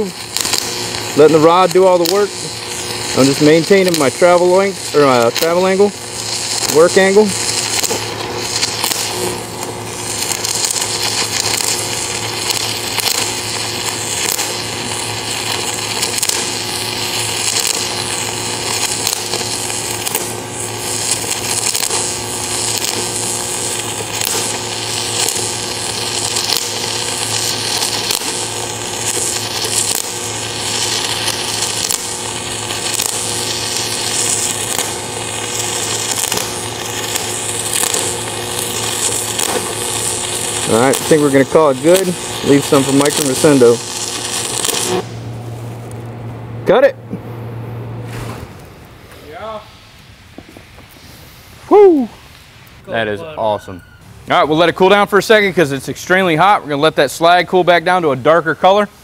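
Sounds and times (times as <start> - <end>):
welding arc crackling hiss: 0.0 - 47.3, 48.0 - 59.0
low hum: 43.8 - 50.3.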